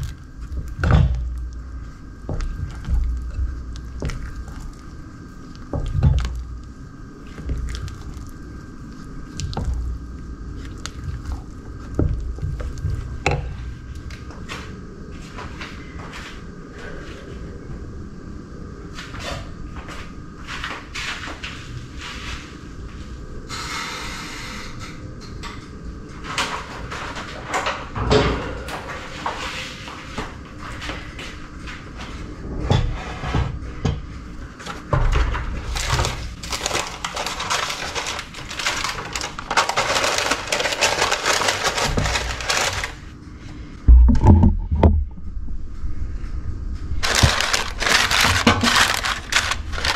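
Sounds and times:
wooden spoon stirring batter: 0.0 - 13.7.

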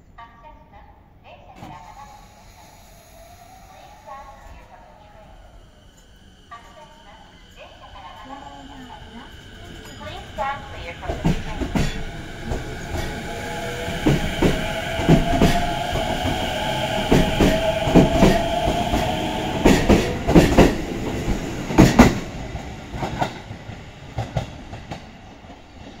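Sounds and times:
electric train motors whining: 1.9 - 22.4.

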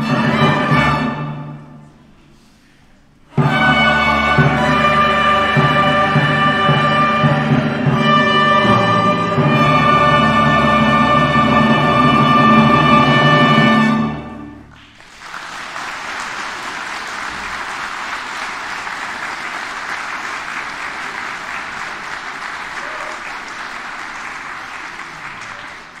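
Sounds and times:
congregation applauding: 14.6 - 26.0.

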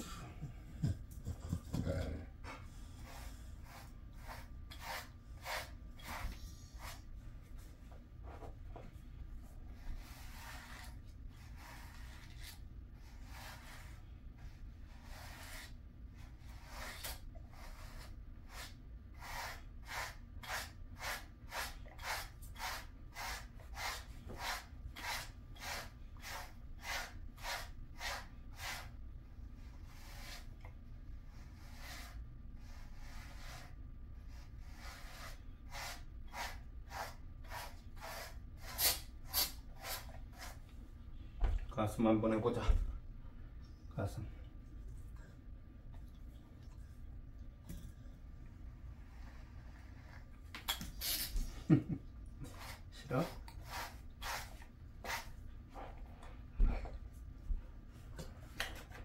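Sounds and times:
brush strokes through dog fur: 2.8 - 29.0, 31.3 - 40.6, 52.5 - 55.9.

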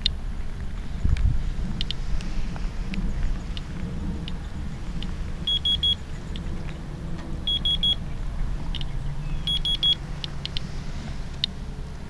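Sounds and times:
geiger counter chirping: 5.4 - 6.0, 7.5 - 8.0, 8.7 - 10.6.

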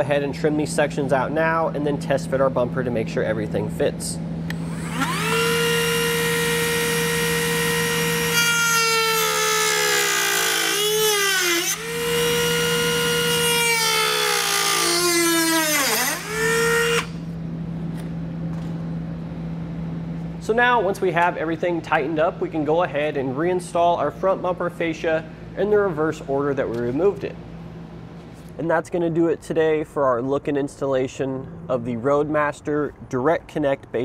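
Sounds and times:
rotary tool whining: 4.5 - 17.3.

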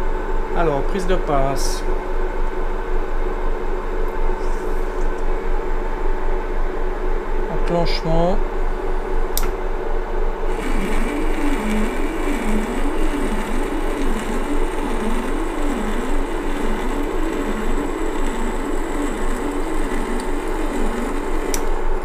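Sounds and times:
wavering lathe whine: 10.3 - 22.0
metal lathe motor and gear hum: 10.5 - 22.0.

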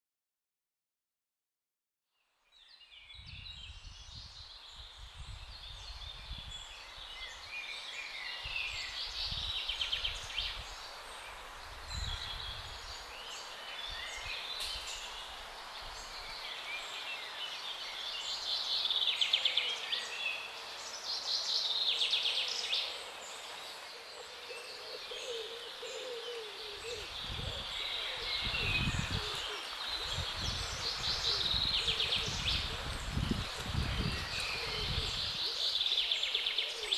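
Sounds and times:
songbirds singing and chirping: 2.2 - 36.9
steady outdoor hiss: 2.4 - 36.9
wind rumble on microphone: 3.1 - 7.4, 8.4 - 13.1, 26.8 - 35.7.

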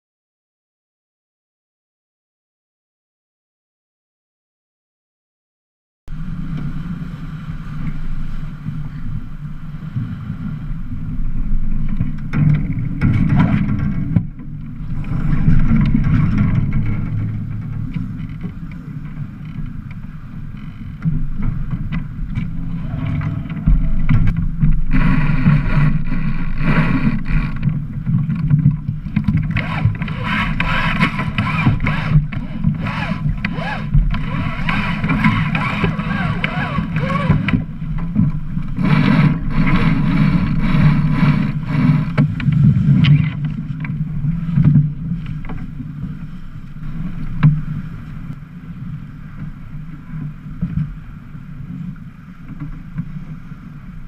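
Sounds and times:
water along a hull: 6.1 - 54.0
wind on microphone: 6.1 - 54.0
lines and deck gear rattling: 11.5 - 45.8.

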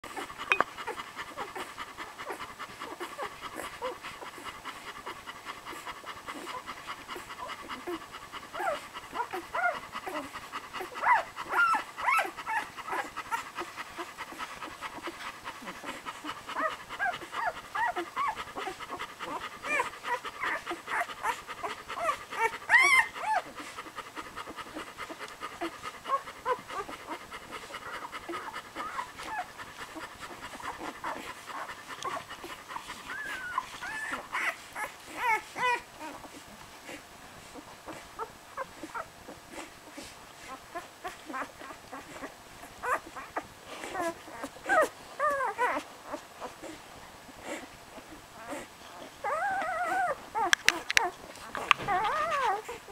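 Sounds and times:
dog panting: 0.0 - 52.9
puppies squeaking and whimpering: 8.6 - 13.7, 14.4 - 23.8, 25.6 - 30.0, 32.8 - 37.0, 38.6 - 46.8, 48.4 - 52.9.

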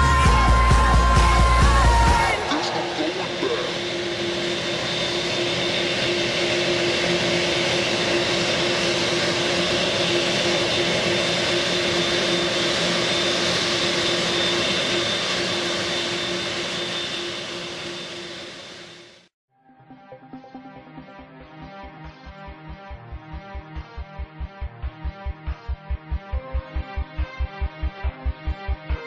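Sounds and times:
jet engines whining: 0.0 - 19.3.

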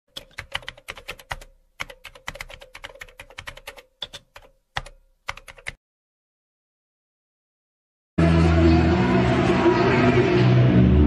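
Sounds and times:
keyboard key clicks: 0.1 - 5.8.

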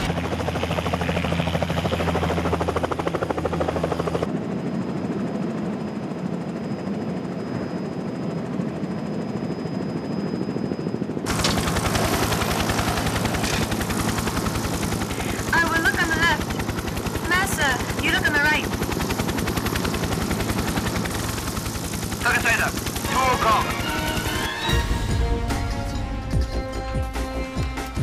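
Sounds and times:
helicopter rotor chop: 0.0 - 25.5
turbine drone: 0.0 - 26.4.

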